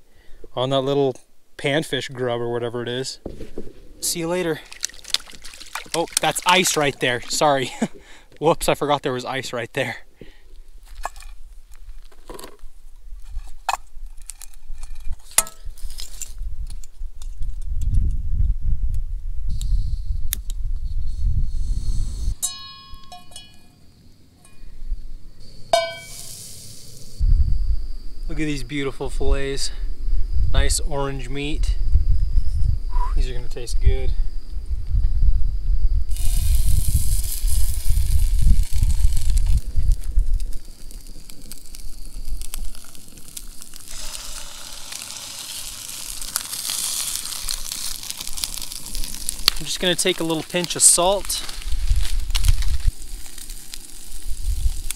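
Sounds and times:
fish sizzling in a pan: 4.3s - 6.9s, 25.8s - 27.2s, 36.1s - 54.9s
metal object struck ringing: 22.4s - 23.7s.

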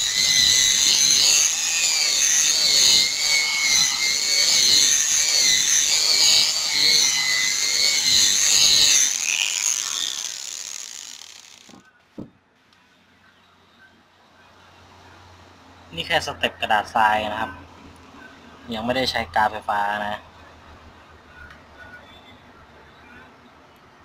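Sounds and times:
electric sander whining: 0.0s - 11.8s.

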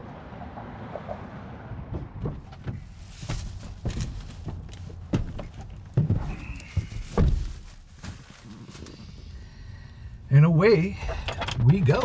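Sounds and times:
knocks and thumps: 1.8s - 7.7s
shuffling steps: 2.0s - 9.4s.

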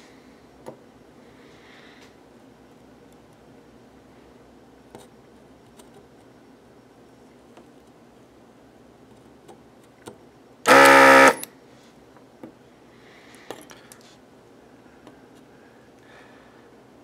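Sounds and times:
loud electric buzz: 10.7s - 11.5s.

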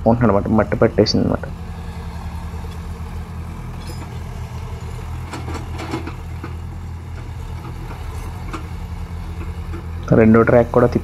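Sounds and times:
excavator diesel engines running: 0.0s - 11.0s
faint metal clanks: 3.7s - 4.4s, 5.2s - 10.2s.

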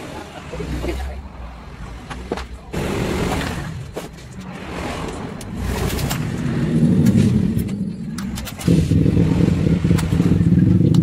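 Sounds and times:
metal clicks: 4.2s - 8.8s.

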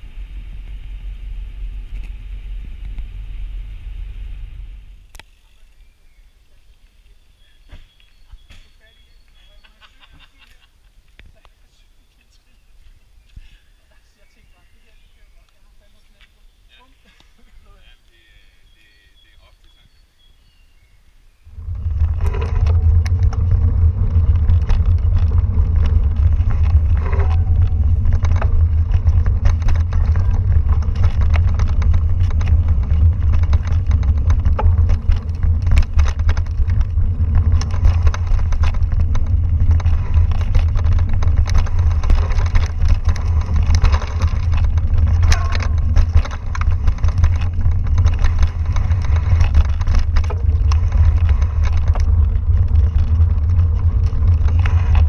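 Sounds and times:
wind and vibration rumble: 0.0s - 11.6s, 12.5s - 55.0s
bike clicks and rattles: 21.4s - 55.0s.

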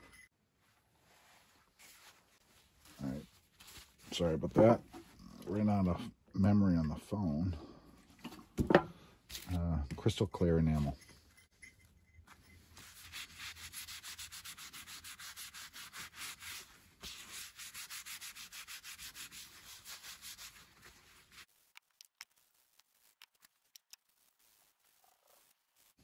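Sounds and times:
cloth rubbing on tile: 0.6s - 4.2s, 12.3s - 26.0s.

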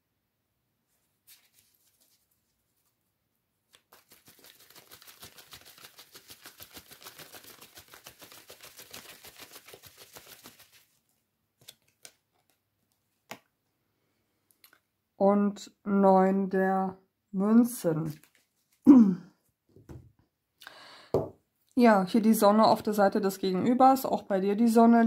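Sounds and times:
cards being shuffled: 1.3s - 2.9s, 3.7s - 11.0s, 11.6s - 13.5s, 18.1s - 18.8s.

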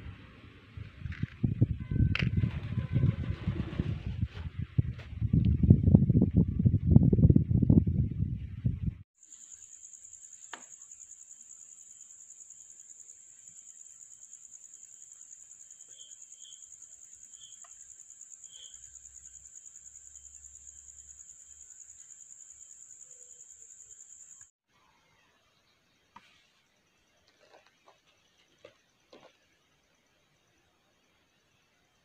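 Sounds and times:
cricket chirping trill: 9.2s - 24.5s.

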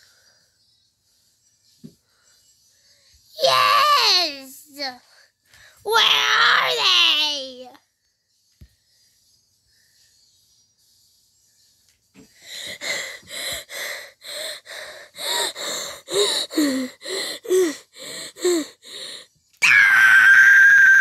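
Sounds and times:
person panting: 12.3s - 19.4s
person screaming: 19.6s - 21.0s.

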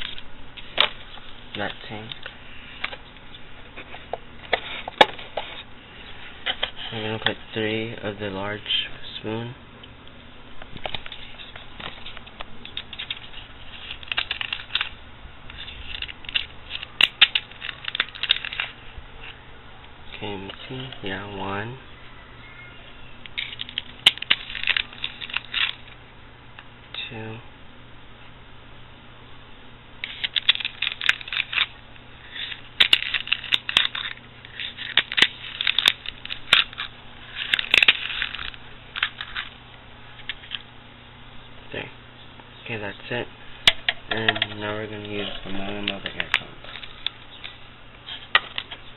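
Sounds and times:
packet rustling and scoop clicks: 10.8s - 18.8s, 23.4s - 26.0s, 30.0s - 31.7s, 32.3s - 39.6s, 45.0s - 48.9s
sachet crinkling and clicking: 15.8s - 18.8s, 30.0s - 39.6s.

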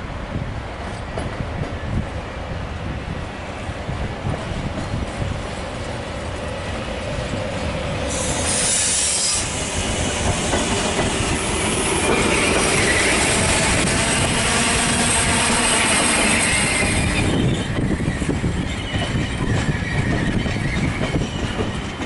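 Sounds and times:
train wheels clattering on rails: 0.8s - 2.1s, 4.2s - 22.0s
short high hiss: 8.1s - 9.6s
wheel squeal: 8.1s - 9.9s, 11.7s - 13.6s, 15.4s - 22.0s.

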